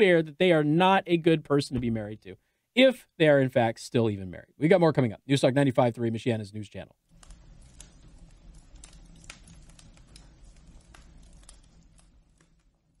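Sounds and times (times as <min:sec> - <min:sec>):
wood fire crackling: 0:07.1 - 0:13.0.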